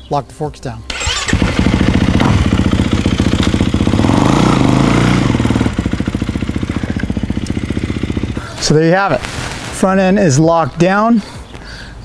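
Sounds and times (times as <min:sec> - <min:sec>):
motocross bike engine running: 0:01.0 - 0:08.7.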